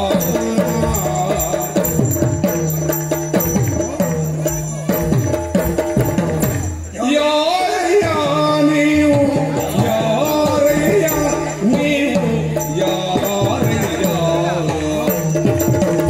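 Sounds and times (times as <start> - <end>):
person singing: 0.0 - 2.2, 7.0 - 15.6
high metallic ringing: 0.0 - 7.2, 9.5 - 16.0.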